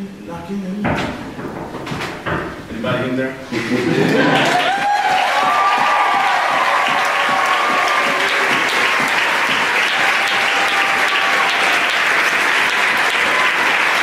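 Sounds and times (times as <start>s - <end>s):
audience applause: 3.5s - 14.0s.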